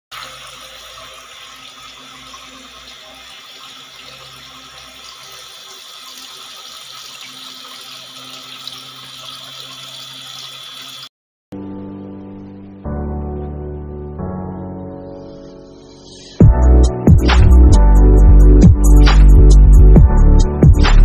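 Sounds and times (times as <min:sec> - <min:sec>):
water streams splashing into tank: 0:00.1 - 0:11.1.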